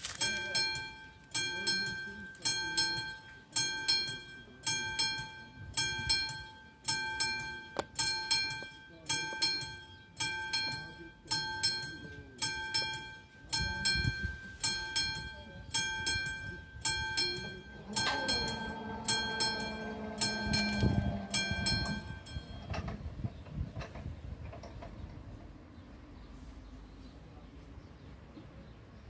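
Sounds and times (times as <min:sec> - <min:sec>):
level crossing warning bell: 0:00.0 - 0:27.3
barrier drive humming: 0:00.4 - 0:26.3.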